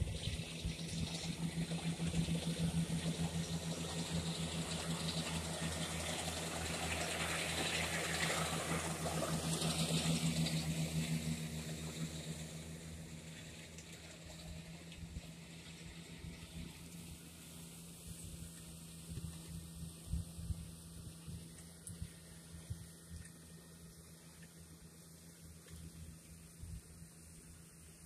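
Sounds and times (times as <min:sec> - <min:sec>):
tractor diesel engine passing: 0:00.0 - 0:18.0.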